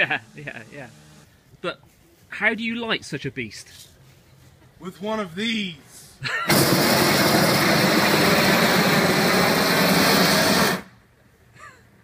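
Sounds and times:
propane torch roaring: 6.4s - 10.9s.

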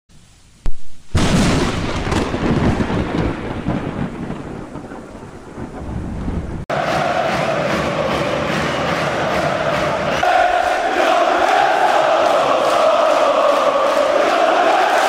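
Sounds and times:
thunder crack and rolling rumble: 1.2s - 6.7s.

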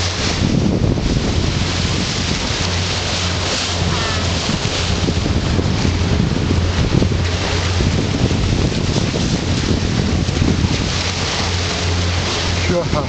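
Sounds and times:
boat engine drone: 0.0s - 13.0s
water rushing along hull: 0.0s - 13.0s
wind buffeting microphone: 0.0s - 13.0s.

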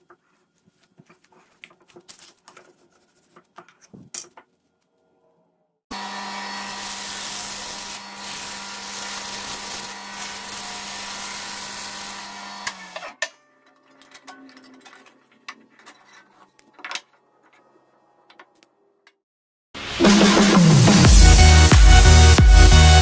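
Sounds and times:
bandsaw cutting wood: 5.9s - 13.2s.

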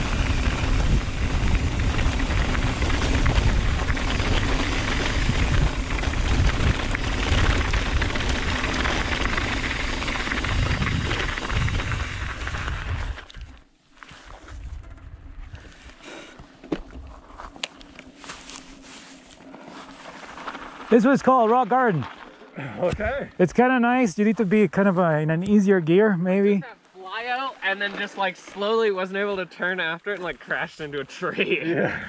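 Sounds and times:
bike rattling over rocks: 0.0s - 13.6s, 14.2s - 15.7s, 19.4s - 22.6s
wind buffeting: 0.0s - 13.6s.

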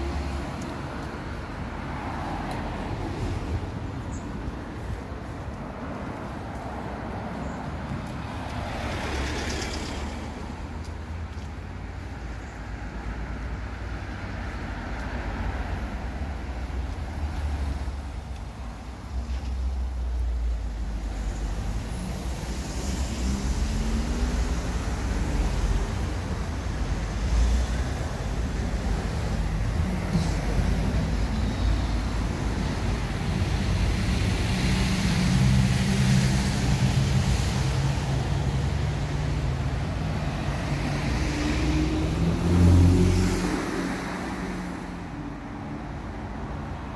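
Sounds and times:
vehicle engine: 15.4s - 19.4s.

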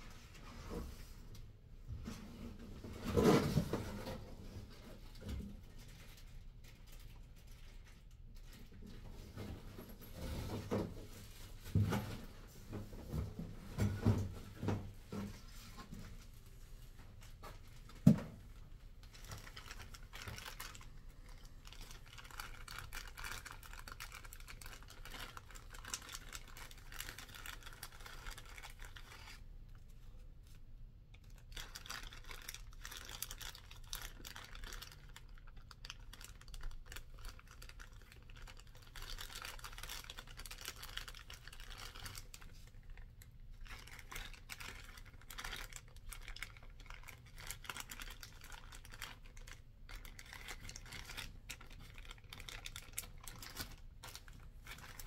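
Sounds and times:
plastic bag crinkling: 17.2s - 30.6s, 31.2s - 55.0s.

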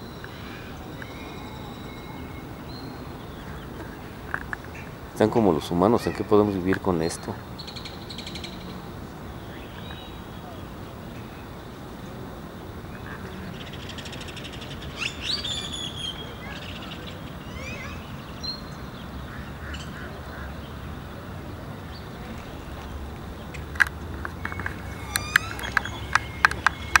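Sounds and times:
birds chirping and whistling: 0.0s - 5.4s, 9.4s - 10.8s, 13.5s - 18.8s, 21.9s - 27.0s
sharp clicks: 23.5s - 27.0s.

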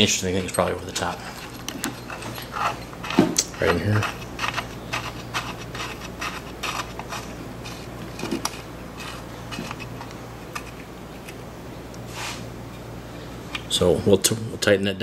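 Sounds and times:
metallic clicks and scraping: 0.2s - 12.0s.

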